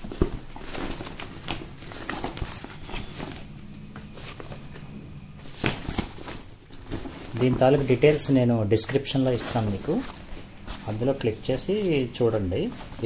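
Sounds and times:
bag fabric rustling: 0.0s - 13.0s.

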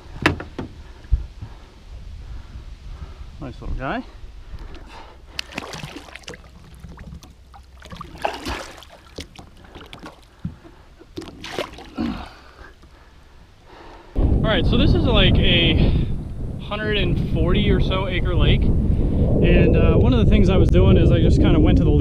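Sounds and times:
water splashing beside a boat: 4.6s - 13.4s.

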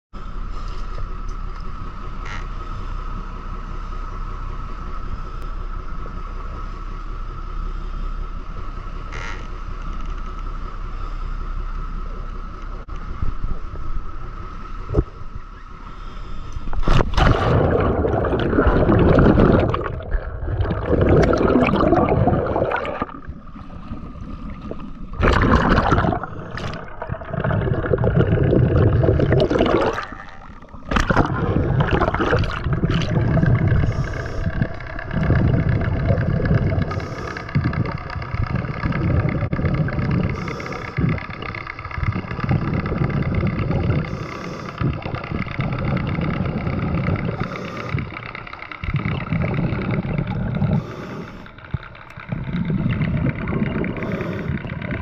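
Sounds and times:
steady drone with high whine: 0.2s - 55.0s
water splashing against camera: 16.7s - 55.0s.

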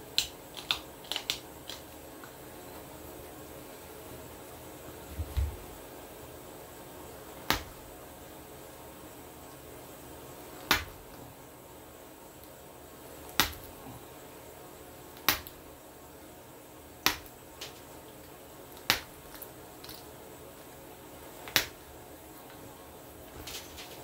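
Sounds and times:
stone flakes snapping off: 13.3s - 13.7s, 15.2s - 15.6s, 18.8s - 20.1s, 21.4s - 21.8s.

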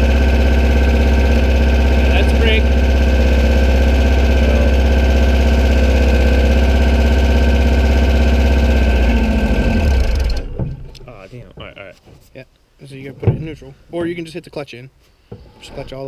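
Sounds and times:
buggy engine idling and stalling: 0.0s - 11.2s.

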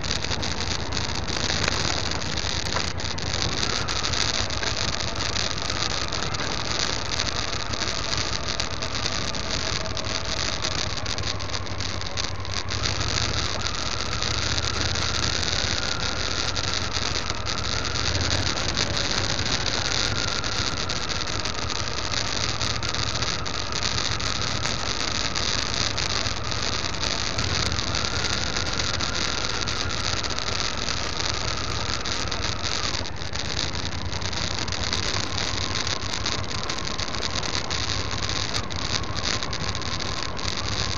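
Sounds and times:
motorcycle engine running: 0.0s - 40.9s
wind and road noise: 0.0s - 40.9s.

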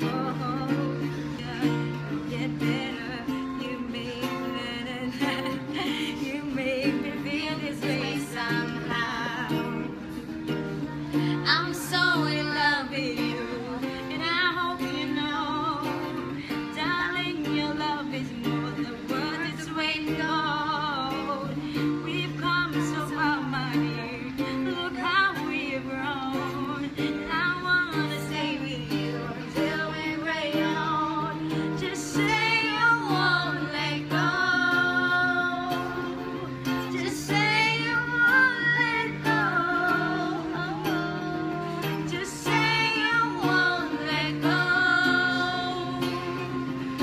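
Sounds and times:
acoustic guitar: 0.0s - 47.0s
woman singing: 0.0s - 47.0s.

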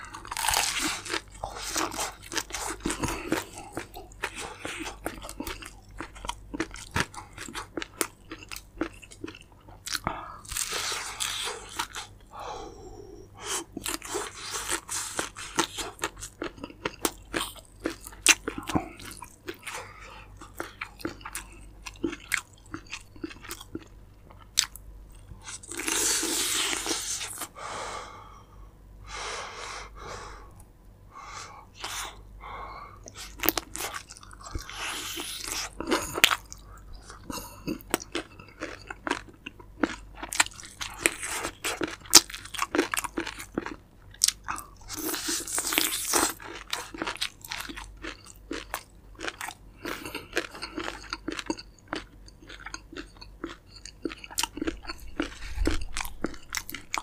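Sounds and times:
crispy chicken crunching: 33.2s - 57.0s.

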